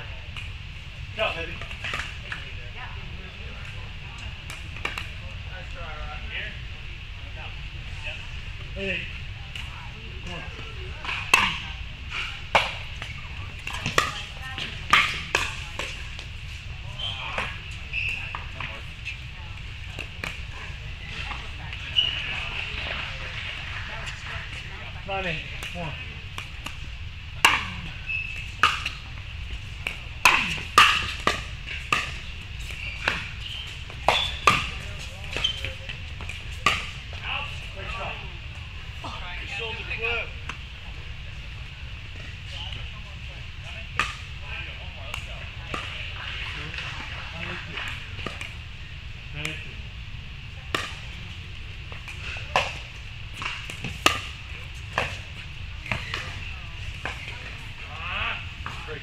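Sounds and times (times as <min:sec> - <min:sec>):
paddles striking pickleball: 0:29.8 - 0:37.0.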